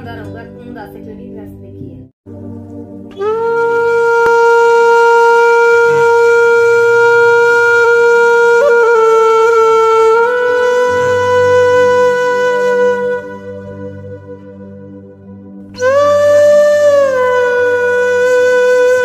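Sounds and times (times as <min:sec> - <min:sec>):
wind instrument long held note: 0:03.1 - 0:19.0.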